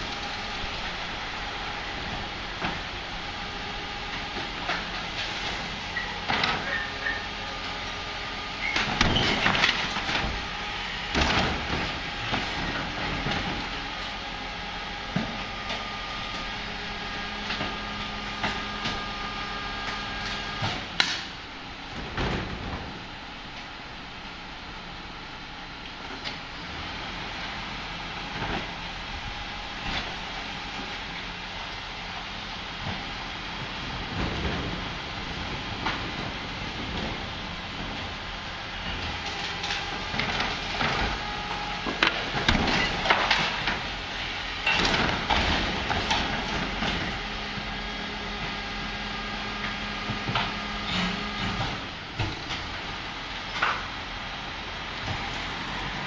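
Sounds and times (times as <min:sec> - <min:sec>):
garbage truck whine: 0:00.0 - 0:56.0
waste container clattering over street: 0:32.8 - 0:52.9.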